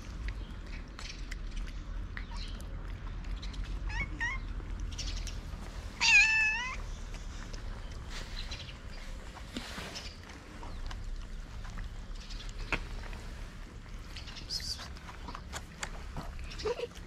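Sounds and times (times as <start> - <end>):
cat chirps: 3.8 - 4.6, 6.0 - 6.9
cat meowing: 3.9 - 4.5, 6.0 - 6.9.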